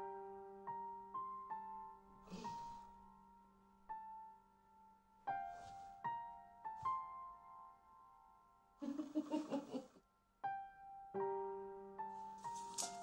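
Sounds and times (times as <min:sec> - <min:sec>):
soft piano music: 0:00.0 - 0:13.0
rustling noise: 0:12.2 - 0:13.0.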